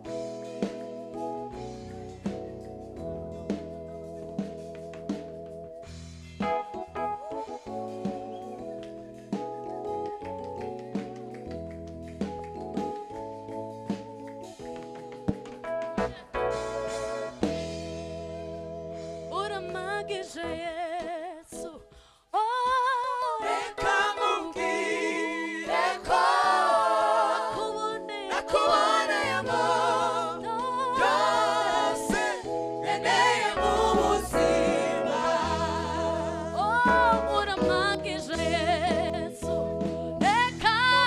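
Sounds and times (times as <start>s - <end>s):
sustained chords and bass: 0.0s - 14.8s, 15.8s - 20.0s, 28.6s - 40.9s
woman lead vocal: 19.4s - 26.2s, 27.2s - 28.6s, 33.6s - 41.0s
gospel choir singing: 23.2s - 39.2s.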